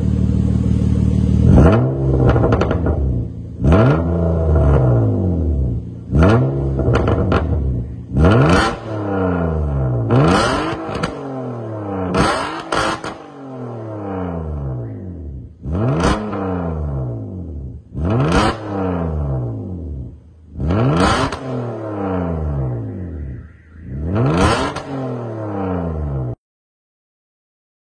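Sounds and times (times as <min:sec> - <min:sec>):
car engine idling and revving: 0:00.0 - 0:26.4.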